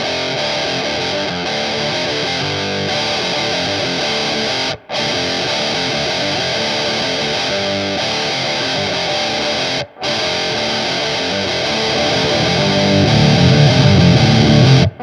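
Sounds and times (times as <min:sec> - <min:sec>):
distorted electric guitar riff: 0:00.0 - 0:15.0.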